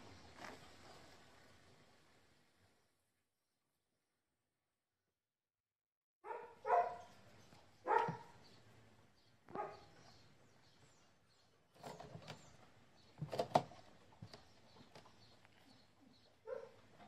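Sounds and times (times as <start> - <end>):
faint birds chirping: 0.0 - 3.0, 6.2 - 17.0
dog bark: 6.2 - 7.1, 7.8 - 8.4, 9.5 - 9.9, 16.4 - 16.8.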